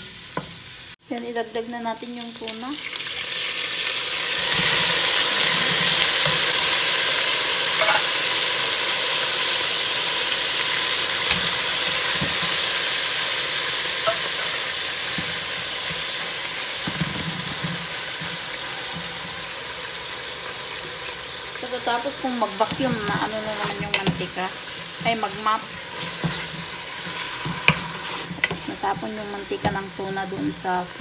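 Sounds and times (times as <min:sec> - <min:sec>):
food sizzling in hot oil: 0:00.0 - 0:31.0
wooden spatula knocking: 0:22.6 - 0:24.4.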